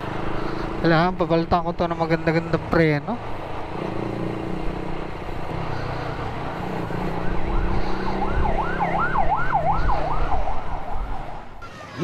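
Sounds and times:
siren yelping: 6.5s - 12.0s.

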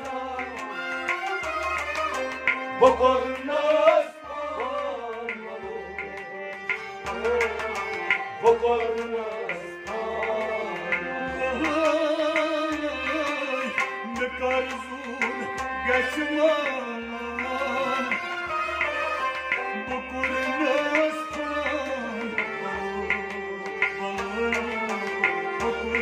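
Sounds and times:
sustained wavering melody: 0.0s - 26.0s
tabla playing: 0.0s - 26.0s.

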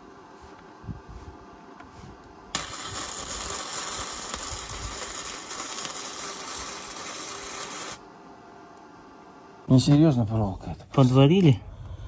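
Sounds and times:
welding arc hissing and crackling: 2.5s - 8.0s.

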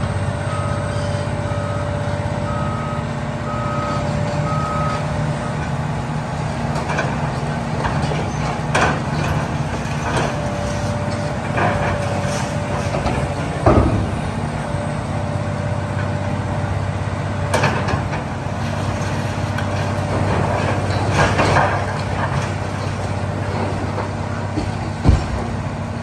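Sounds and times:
excavator diesel engine running: 0.0s - 26.0s
debris crashing and clanking: 7.8s - 14.7s, 17.5s - 25.7s.

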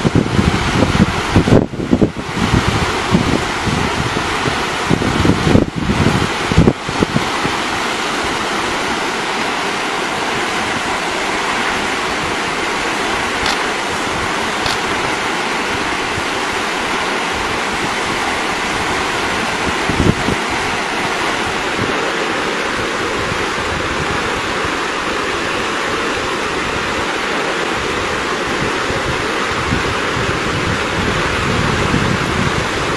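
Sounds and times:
fast-flowing river rushing: 0.0s - 32.9s.

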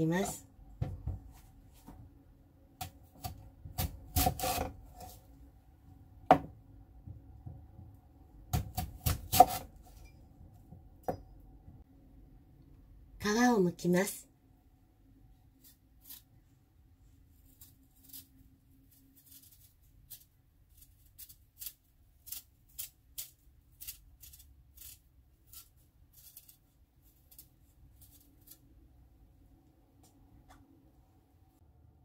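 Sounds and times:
knife cutting radish peel: 2.8s - 5.2s, 8.5s - 10.0s, 15.6s - 16.4s, 17.3s - 28.9s.

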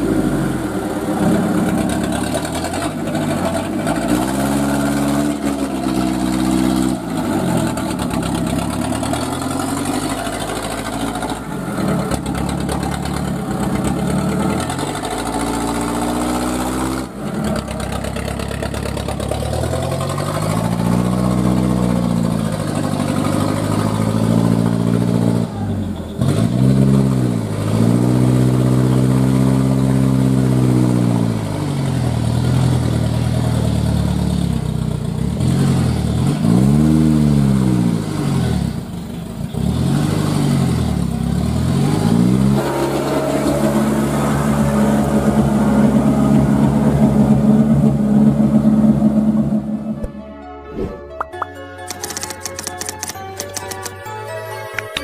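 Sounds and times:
truck engine revving: 0.0s - 50.1s.

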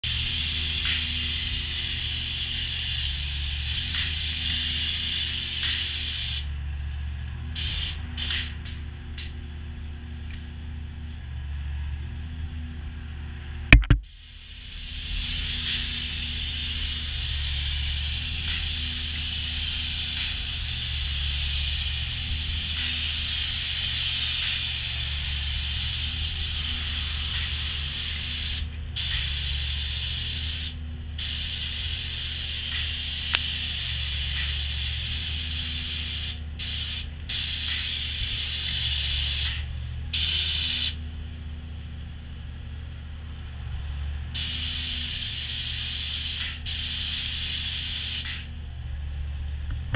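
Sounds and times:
spray gun hissing: 0.0s - 6.6s, 7.6s - 8.5s, 14.1s - 41.0s, 44.4s - 48.5s
steady low hum: 0.0s - 47.8s, 48.4s - 49.9s.

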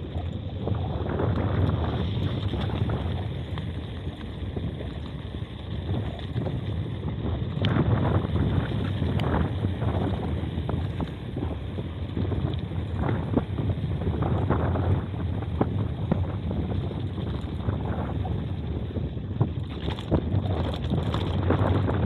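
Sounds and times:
bike tyre rumble on paving: 0.0s - 22.0s
wind on microphone: 0.0s - 22.0s
bike clicks and rattles: 18.6s - 22.0s.

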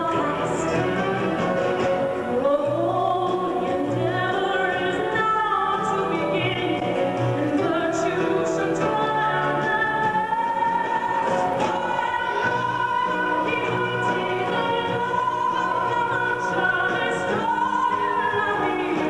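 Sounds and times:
orchestra playing: 0.0s - 2.4s
operatic singing: 0.0s - 19.0s.

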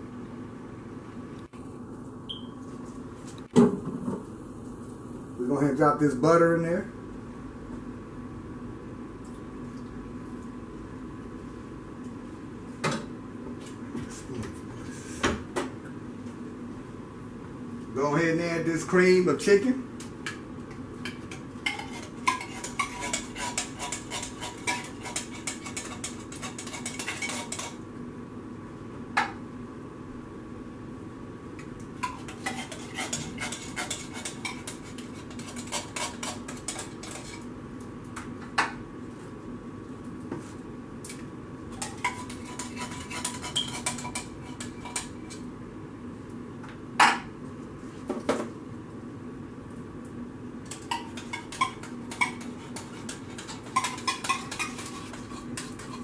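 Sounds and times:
spoon scraping inside tin cans: 21.7s - 27.8s, 32.0s - 37.4s, 41.8s - 45.4s, 50.7s - 56.0s.

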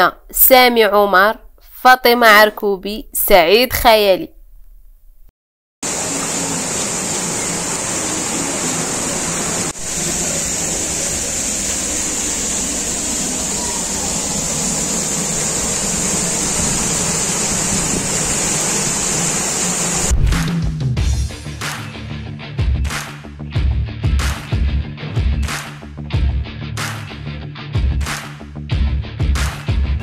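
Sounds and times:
waterfall rushing: 5.8s - 20.1s.

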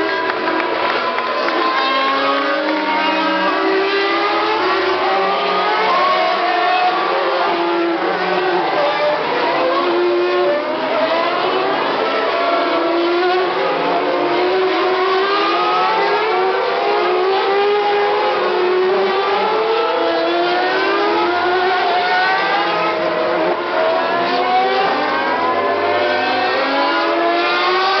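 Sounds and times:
race car engines accelerating: 0.0s - 28.0s.

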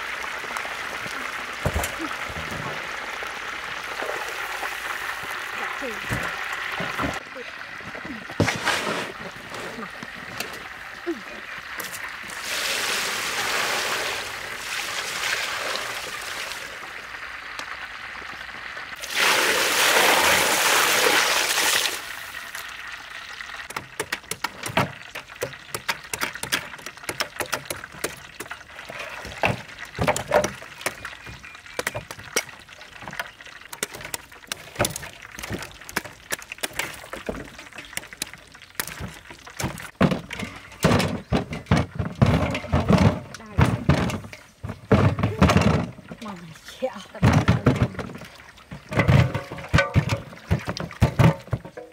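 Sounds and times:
water pouring over coconuts: 0.0s - 40.1s.

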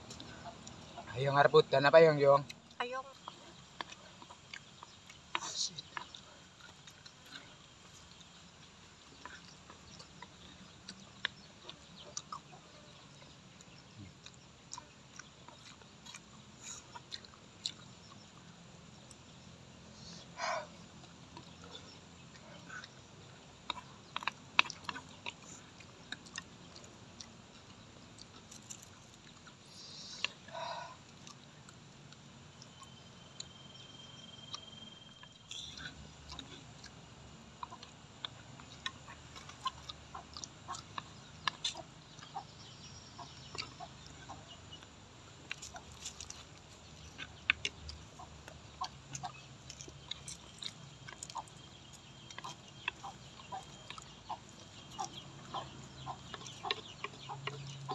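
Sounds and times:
chickens clucking: 0.0s - 18.5s, 35.4s - 57.9s
chewing: 0.0s - 57.9s.

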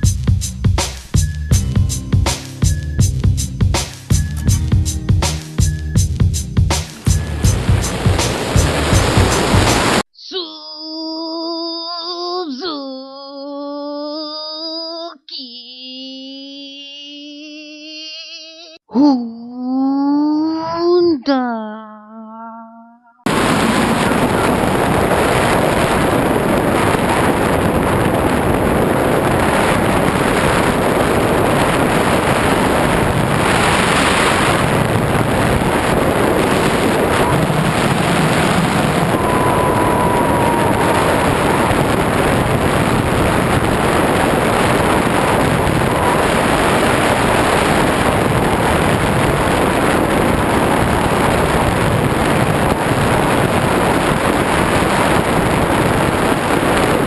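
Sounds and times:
wind rushing over microphone: 6.4s - 10.0s, 23.3s - 57.0s.

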